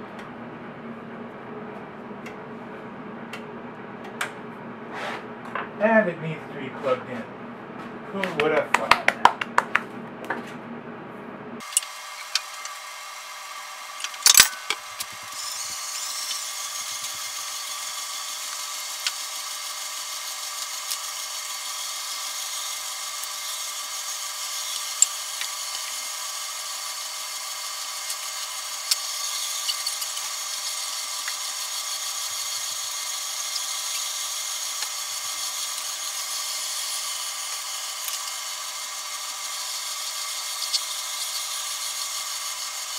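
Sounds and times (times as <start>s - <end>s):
stand mixer motor whining: 11.6s - 42.9s.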